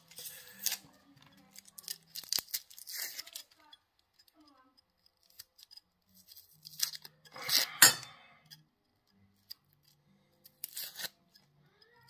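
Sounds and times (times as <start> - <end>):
onion skin crinkling and tearing: 0.0 - 4.3, 4.9 - 7.8, 9.4 - 11.5.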